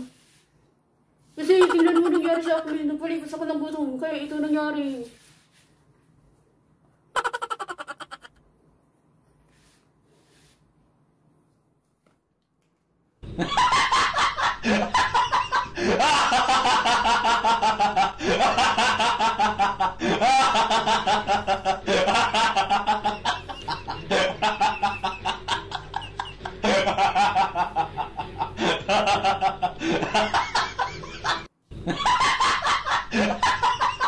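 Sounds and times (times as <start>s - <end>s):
cackling laugh: 1.5s - 2.4s, 7.1s - 8.4s, 13.3s - 34.0s.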